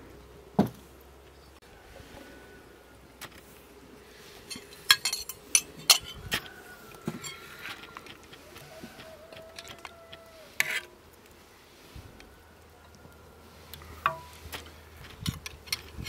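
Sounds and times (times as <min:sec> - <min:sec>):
cookware and utensils clinking: 0:04.4 - 0:06.3.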